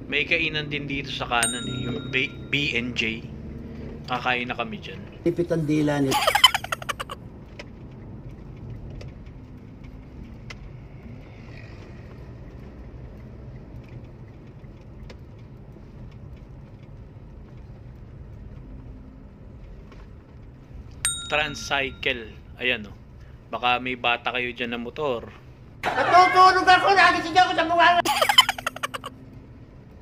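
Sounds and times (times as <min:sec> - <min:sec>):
car engine drone: 0:00.0 - 0:21.3
tyres on the road: 0:00.0 - 0:30.0.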